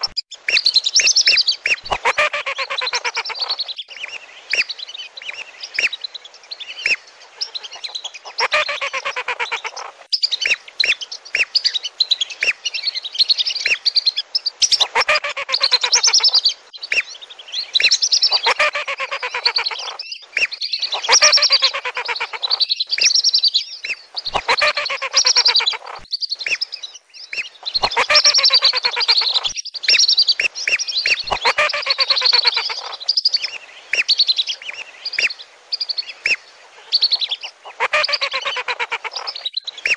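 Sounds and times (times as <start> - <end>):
ducks shrill whistling calls: 0.0 - 3.7, 6.8 - 12.8, 14.6 - 17.1, 17.8 - 26.7, 27.4 - 39.9.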